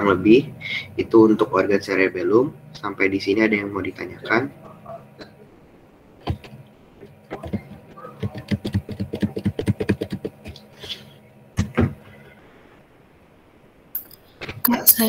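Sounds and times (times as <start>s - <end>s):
faint steady hum: 0.0s - 15.0s
louder knock: 11.6s - 12.0s.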